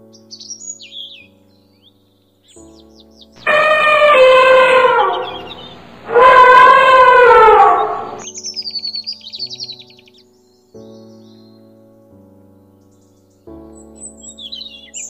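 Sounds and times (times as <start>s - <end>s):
background music: 0.0s - 15.0s
elephant trumpeting: 3.4s - 8.2s
birds chirping: 3.4s - 8.5s.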